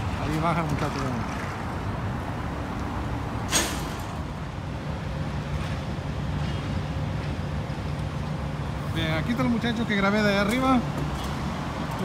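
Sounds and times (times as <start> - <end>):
road traffic rumble: 0.0 - 12.0
short sharp hiss: 3.5 - 4.0.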